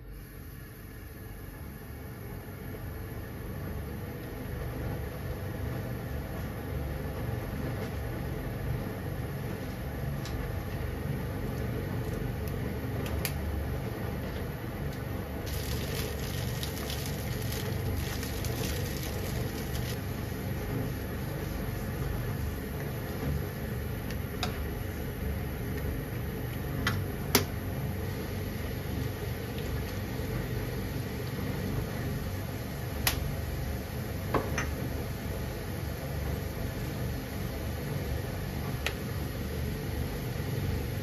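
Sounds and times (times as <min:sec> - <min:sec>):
gas burner rumbling: 0:00.0 - 0:41.0
water boiling and bubbling: 0:15.4 - 0:26.4, 0:27.6 - 0:32.4.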